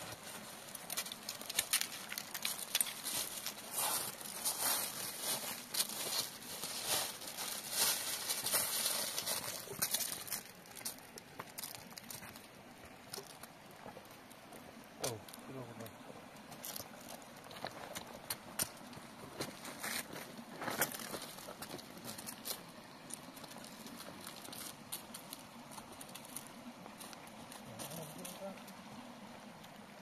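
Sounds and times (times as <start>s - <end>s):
footsteps crunching on dry leaves: 0.1s - 12.5s.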